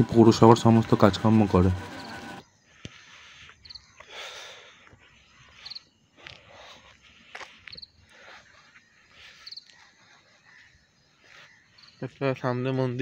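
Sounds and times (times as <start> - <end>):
cricket chirping: 2.4 - 12.4
footsteps scuffing: 4.8 - 12.4.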